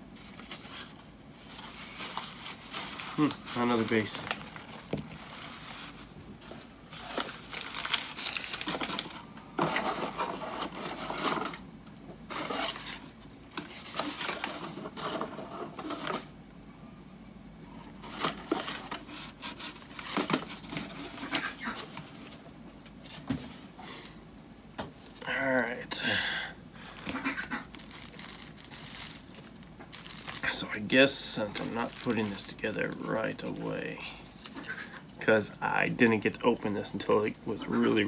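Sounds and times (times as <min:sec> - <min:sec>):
packing paper rustling and crinkling: 0:00.1 - 0:11.6, 0:12.3 - 0:16.3, 0:18.0 - 0:22.4, 0:26.8 - 0:34.6.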